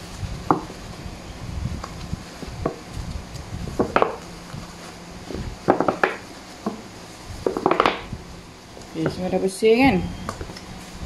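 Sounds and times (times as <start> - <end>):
tissue wiping plastic: 0.0 - 9.0
plastic boxes rubbing and clattering: 1.8 - 8.2.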